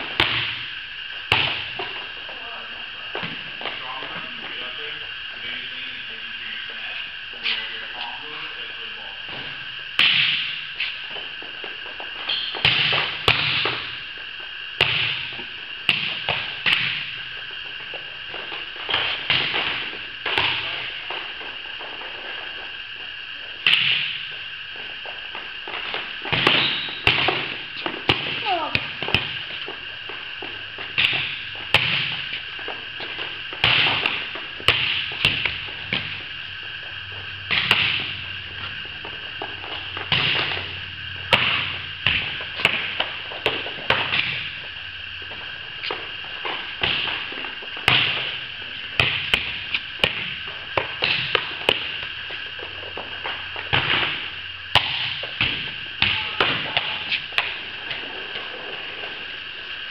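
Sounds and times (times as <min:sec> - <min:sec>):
volleyballs being struck: 0:00.0 - 0:00.7, 0:01.3 - 0:02.0, 0:09.3 - 0:11.2, 0:12.3 - 0:14.0, 0:14.8 - 0:17.4, 0:18.3 - 0:22.0, 0:23.6 - 0:24.4, 0:25.7 - 0:36.4, 0:37.1 - 0:44.7, 0:45.8 - 0:58.1.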